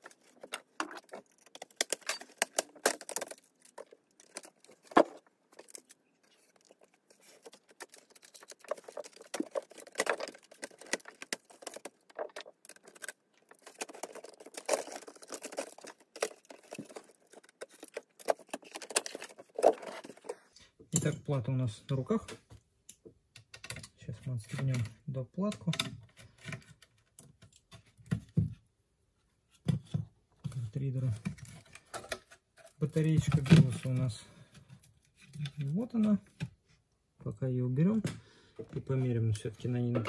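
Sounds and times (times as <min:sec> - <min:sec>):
laptop plastic clicks and rattles: 0:00.0 - 0:20.3.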